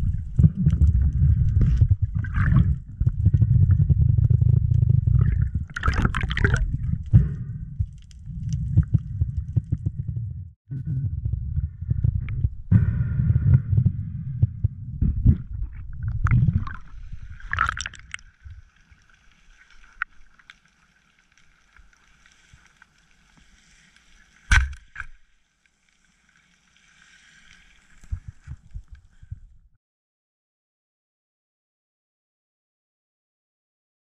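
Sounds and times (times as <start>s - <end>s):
underwater water rushing: 0.0s - 7.6s, 15.6s - 22.7s
faint underwater crackling: 0.0s - 10.3s, 14.4s - 29.6s.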